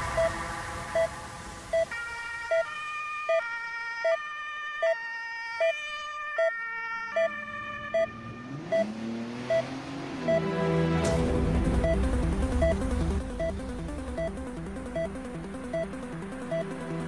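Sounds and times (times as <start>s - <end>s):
synth chords: 0.0s - 2.7s, 9.5s - 17.0s.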